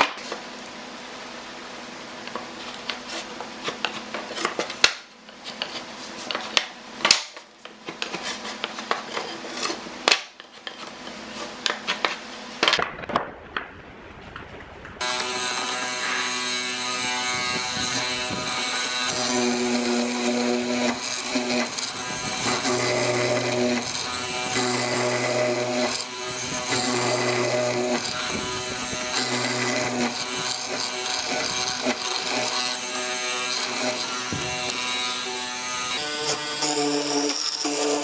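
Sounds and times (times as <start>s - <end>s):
marking gauge scraping wood: 7.8s - 9.8s
mortiser motor whining: 15.0s - 38.0s.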